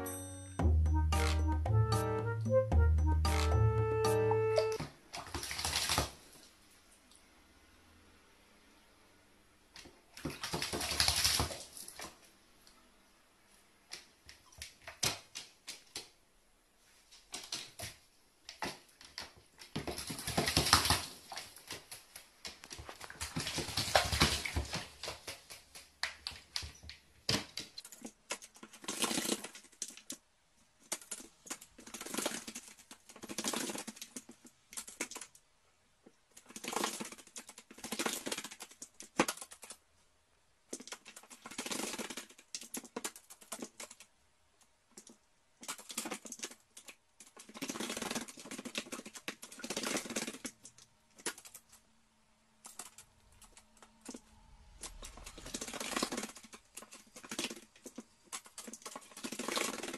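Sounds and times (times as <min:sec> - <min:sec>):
bird splashing in water: 0:05.1 - 0:06.4, 0:10.1 - 0:12.2, 0:18.6 - 0:26.6.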